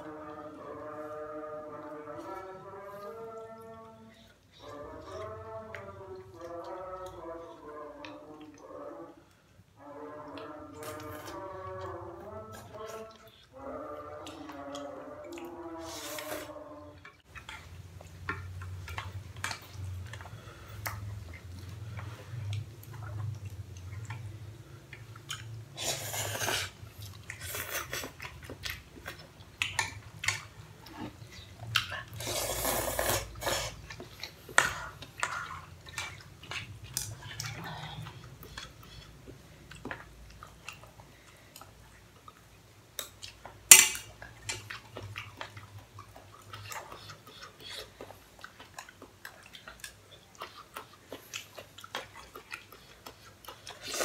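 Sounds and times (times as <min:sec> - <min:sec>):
chewing: 0:00.0 - 0:54.0
noodle slurps: 0:15.8 - 0:16.6, 0:25.7 - 0:28.2, 0:31.9 - 0:39.1, 0:52.7 - 0:54.0.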